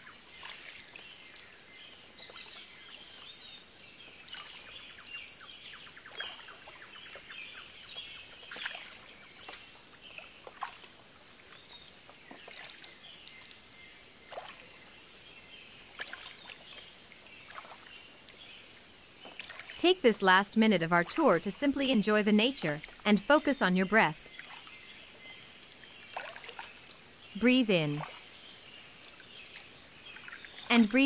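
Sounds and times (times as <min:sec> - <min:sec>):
water lapping against boat hull: 0:00.3 - 0:01.6, 0:04.2 - 0:18.6, 0:19.2 - 0:19.8, 0:22.6 - 0:23.0, 0:24.2 - 0:31.0
steady high-pitched hiss: 0:13.0 - 0:31.0
birds chirping: 0:15.4 - 0:31.0.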